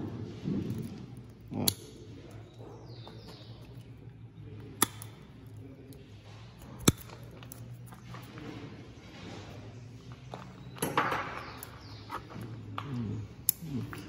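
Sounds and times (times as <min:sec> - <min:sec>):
pruning shears snipping twigs: 0:04.6 - 0:08.0.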